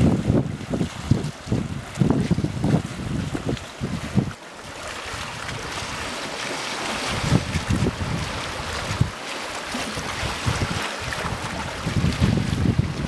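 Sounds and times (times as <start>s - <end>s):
wind buffeting microphone: 0.0s - 4.4s, 6.9s - 9.2s, 9.8s - 13.0s
water sloshing among boulders: 0.0s - 13.0s.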